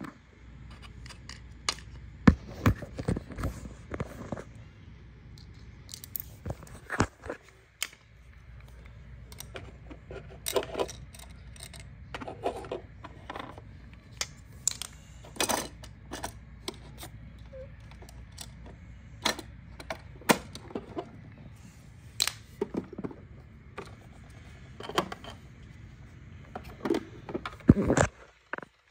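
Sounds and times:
low steady hum: 0.0s - 28.9s
plastic toy pieces clicking: 10.4s - 12.7s.

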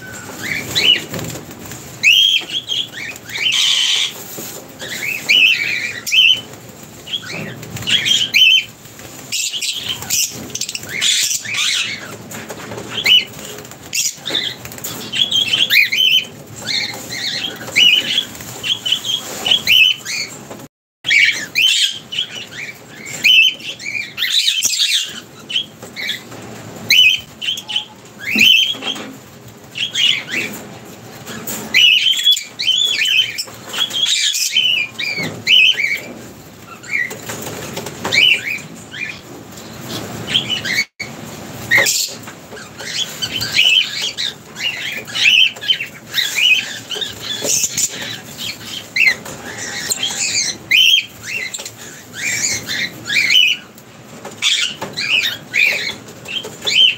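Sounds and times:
lovebirds chirping: 0.0s - 12.2s
wing flutters: 0.0s - 20.6s.

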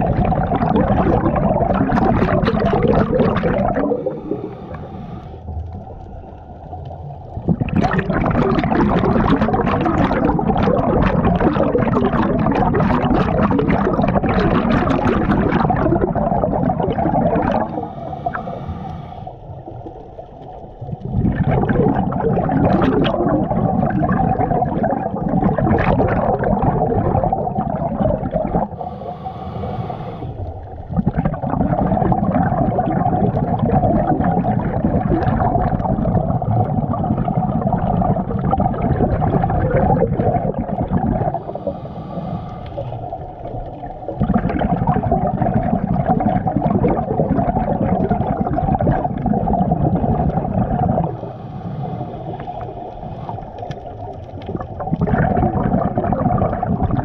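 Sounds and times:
bubbling exhalations underwater: 0.0s - 4.9s, 7.2s - 18.6s, 19.6s - 28.9s, 30.7s - 41.8s, 42.7s - 51.3s, 52.3s - 57.0s
hissing regulator inhalation: 3.2s - 5.5s, 17.4s - 19.6s, 28.5s - 30.6s, 41.2s - 43.5s, 51.0s - 53.7s.

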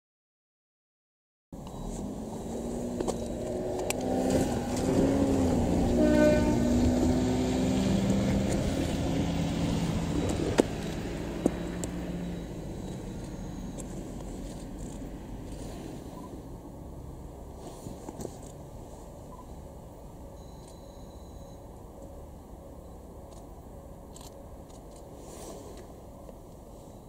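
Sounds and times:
diesel railcar engine running: 1.6s - 27.0s
train horn toot: 5.2s - 7.7s.

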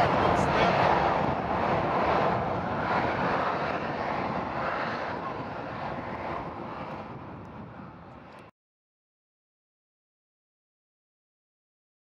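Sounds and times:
distant jet engines rushing: 0.0s - 8.5s.

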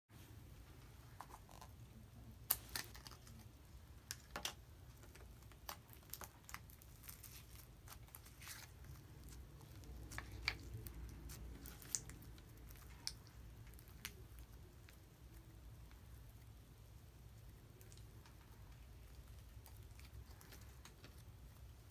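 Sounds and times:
slime sticky crackles: 4.8s - 21.9s.

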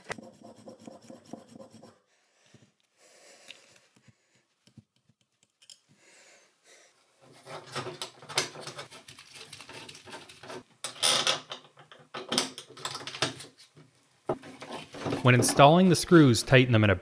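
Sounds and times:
metal plate scraping against tub: 14.3s - 15.8s.

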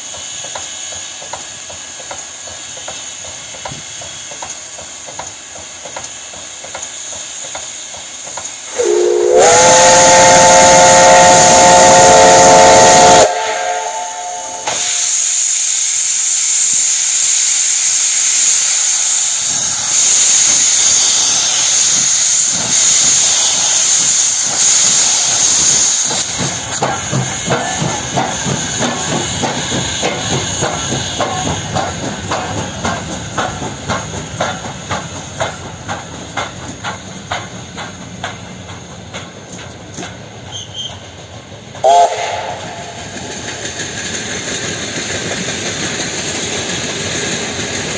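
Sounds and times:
locomotive exhaust beat: 0.0s - 15.7s, 16.5s - 47.9s
loud steam hiss: 0.0s - 47.9s
steam locomotive whistle: 8.7s - 15.7s, 40.5s - 41.1s, 41.8s - 43.2s.

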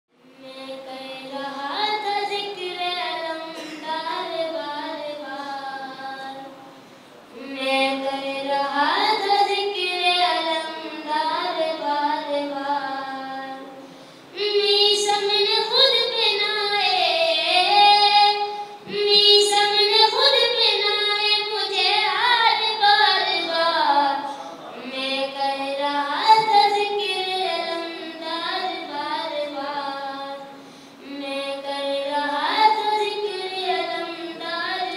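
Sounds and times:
boy singing into a microphone: 0.2s - 6.6s, 7.3s - 34.9s.

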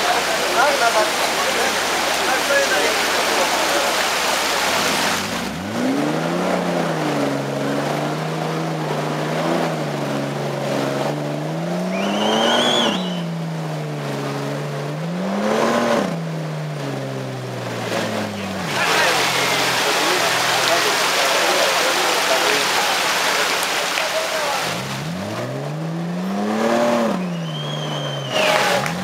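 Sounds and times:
off-road vehicle engine revving: 0.0s - 29.0s
high wavering whistle: 11.8s - 13.3s, 27.2s - 28.6s.

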